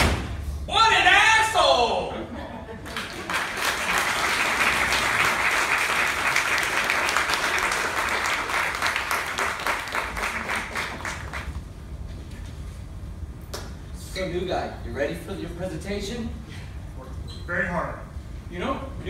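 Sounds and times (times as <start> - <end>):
audience applauding: 2.8 - 11.6.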